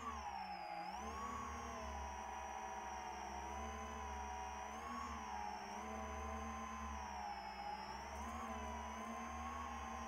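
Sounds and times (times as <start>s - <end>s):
quadcopter motors whining: 0.0s - 10.0s.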